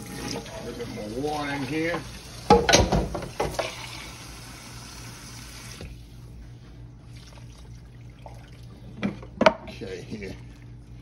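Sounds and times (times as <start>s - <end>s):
water running into a pot: 0.0s - 5.8s.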